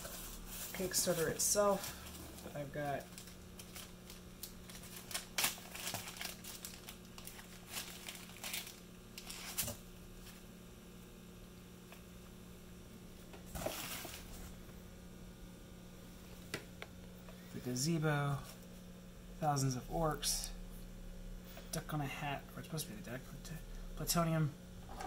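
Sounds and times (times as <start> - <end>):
plastic bag crinkling: 0.0 - 10.4
low hum: 0.0 - 25.0.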